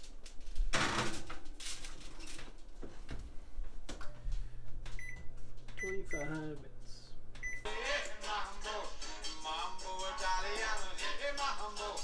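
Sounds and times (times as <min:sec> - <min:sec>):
low steady hum: 0:02.6 - 0:07.7.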